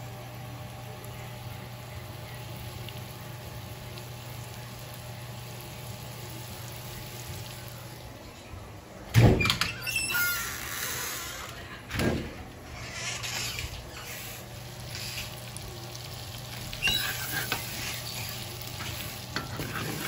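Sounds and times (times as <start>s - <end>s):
butter sizzling in wok: 0.0s - 8.0s, 12.8s - 20.0s
short squeaks: 9.6s - 11.6s, 12.7s - 14.0s, 16.7s - 17.5s.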